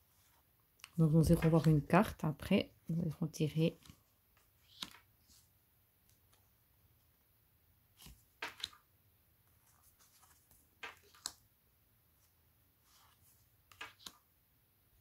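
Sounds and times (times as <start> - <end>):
cards sliding and tapping: 3.8 - 5.1, 8.0 - 8.8, 9.7 - 11.5, 12.9 - 14.3.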